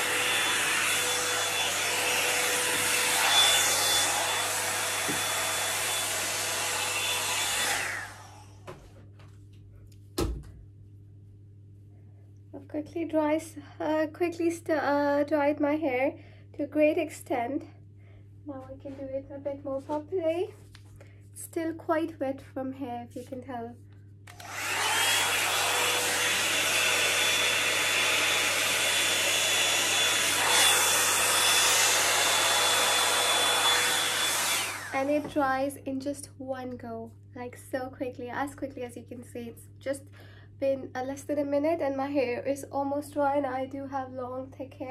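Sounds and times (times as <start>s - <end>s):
hot-air brush blowing: 0.0s - 8.6s, 24.3s - 35.4s.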